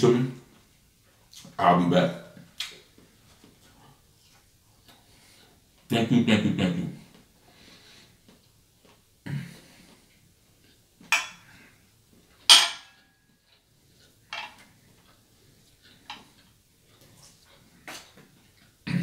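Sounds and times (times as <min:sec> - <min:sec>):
fork clinking on platter: 0:11.1 - 0:11.4, 0:12.5 - 0:13.1.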